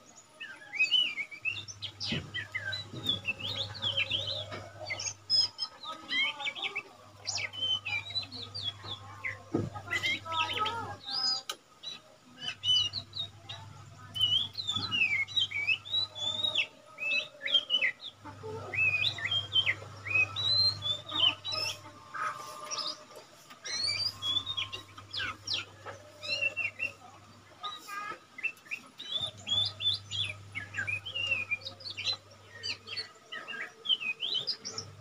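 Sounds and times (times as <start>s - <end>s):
bird singing whistled notes: 0.4s - 6.7s, 12.4s - 18.2s, 28.4s - 35.0s.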